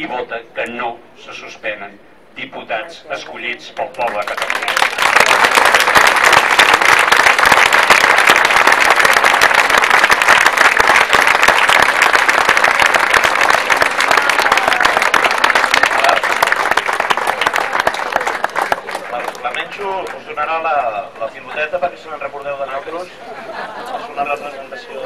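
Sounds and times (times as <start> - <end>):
crowd applauding: 3.9 - 20.4.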